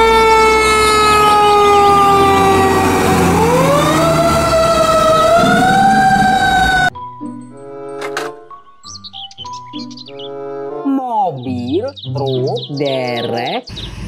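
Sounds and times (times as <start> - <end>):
fire truck siren wailing: 0.0 - 7.0.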